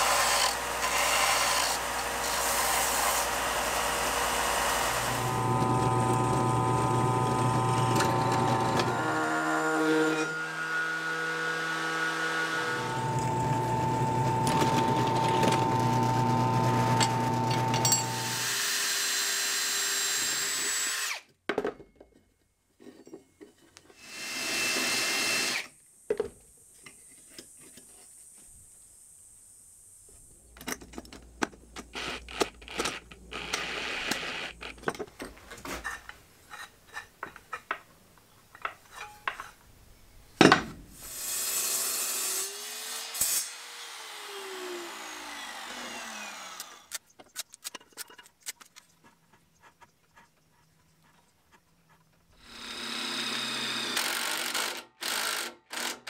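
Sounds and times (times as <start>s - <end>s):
cordless drill boring through metal: 0.0s - 21.3s, 24.0s - 25.7s, 31.9s - 34.8s, 41.1s - 47.0s, 52.4s - 56.0s.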